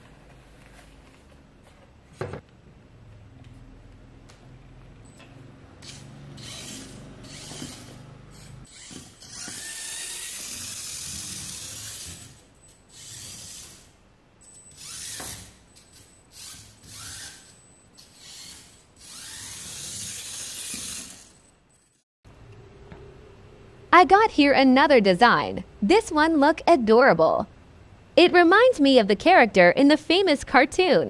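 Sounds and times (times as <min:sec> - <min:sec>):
tiny electric motor whirring: 0:05.8 - 0:13.9, 0:14.7 - 0:22.0.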